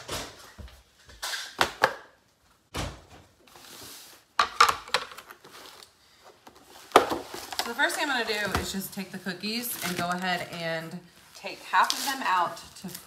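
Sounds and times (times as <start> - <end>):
groceries knocking and thudding: 6.4 - 10.8.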